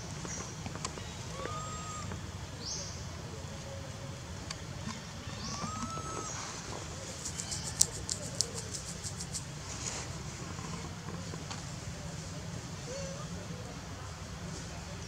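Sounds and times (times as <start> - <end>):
birds chirping and whistling: 5.3 - 7.8.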